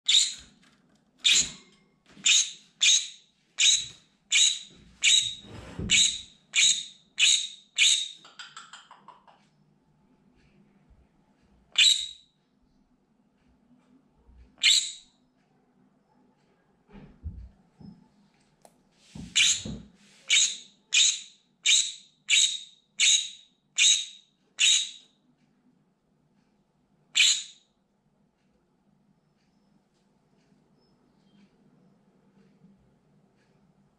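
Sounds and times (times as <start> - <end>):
parrot screaming: 19.4 - 19.7.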